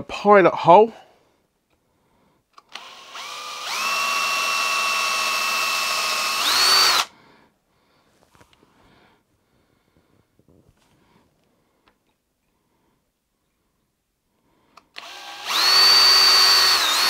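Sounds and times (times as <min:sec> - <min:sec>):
cordless drill whining: 0:02.5 - 0:07.2, 0:14.7 - 0:17.0.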